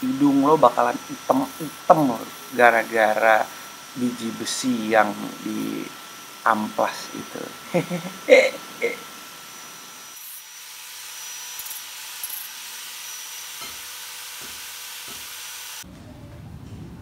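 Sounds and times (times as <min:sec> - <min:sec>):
angle grinder sanding steel: 0:00.0 - 0:15.8.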